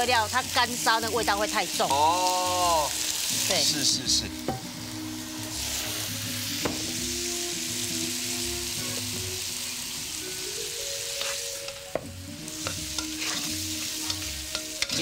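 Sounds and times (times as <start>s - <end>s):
beef sizzling in a wok: 0.0s - 15.0s
metal spatula tapping wok: 11.2s - 15.0s.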